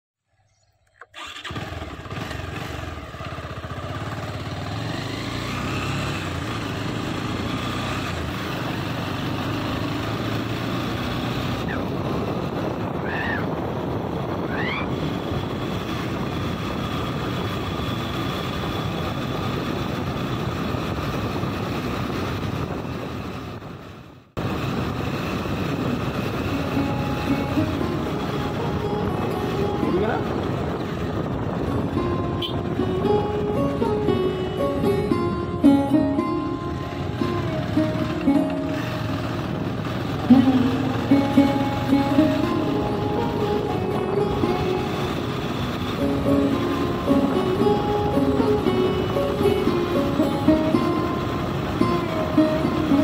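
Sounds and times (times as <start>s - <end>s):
motorcycle engine running: 1.2s - 53.0s
wind over microphone: 11.2s - 36.3s.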